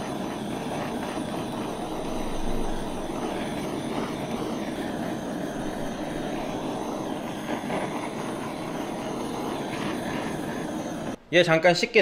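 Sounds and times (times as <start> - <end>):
gas torch hissing: 0.0 - 11.6.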